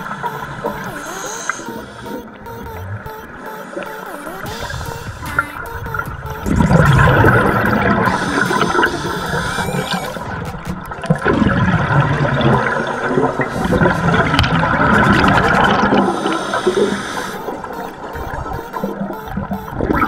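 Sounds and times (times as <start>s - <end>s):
underwater breath bubbling: 3.3s - 18.6s.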